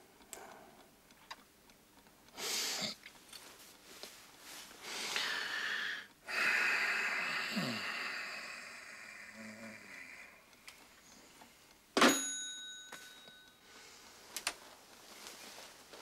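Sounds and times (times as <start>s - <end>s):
man breathing heavily: 4.8s - 11.7s
long sigh through the nose: 4.9s - 10.5s
low falling grunt: 7.4s - 10.4s.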